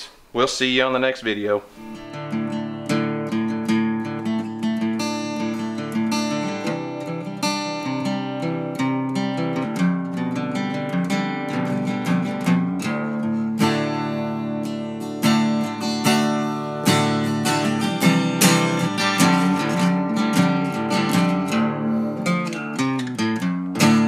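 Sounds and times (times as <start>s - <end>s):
strummed acoustic guitar music: 1.7s - 24.0s.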